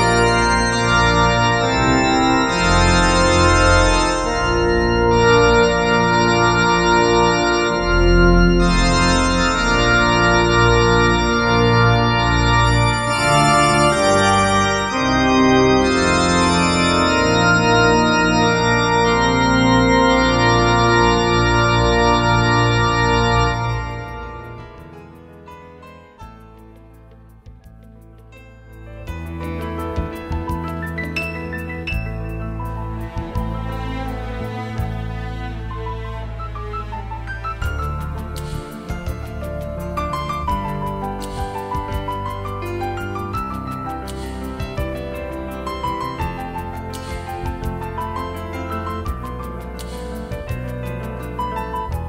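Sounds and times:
organ playing slow chords: 0.0s - 25.5s, 38.0s - 52.0s.

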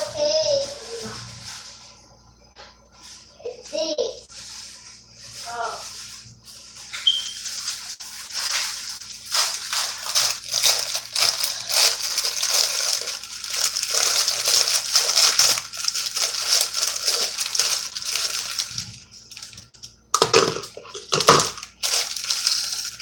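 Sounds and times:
plastic bag crinkling: 7.0s - 23.0s.

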